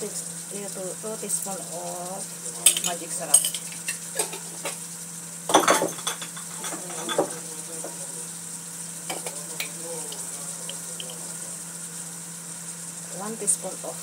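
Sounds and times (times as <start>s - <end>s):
faint sizzle of frying: 0.0s - 14.0s
utensils clinking against pans: 2.6s - 4.8s, 5.5s - 8.0s.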